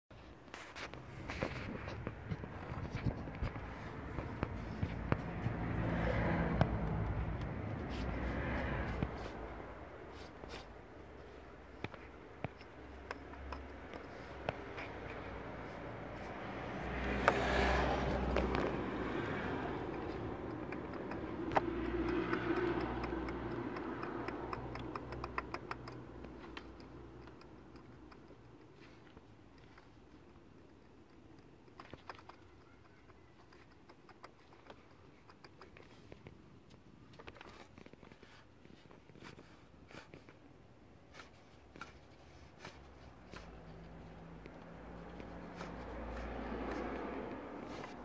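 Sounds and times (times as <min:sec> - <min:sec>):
pulley ticking and clicking: 0:10.9 - 0:38.2.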